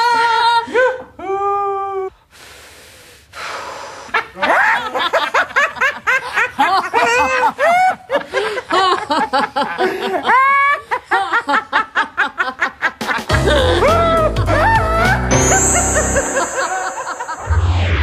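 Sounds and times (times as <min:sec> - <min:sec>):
hiss: 0:02.3 - 0:04.2.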